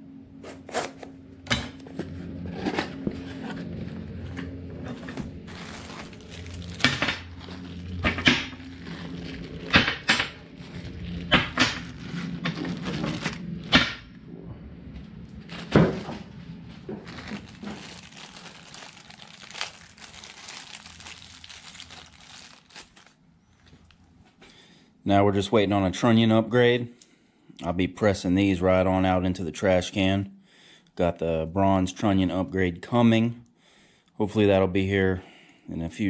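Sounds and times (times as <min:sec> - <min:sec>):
plastic bags crinkling: 0:05.4 - 0:13.7, 0:15.5 - 0:24.0.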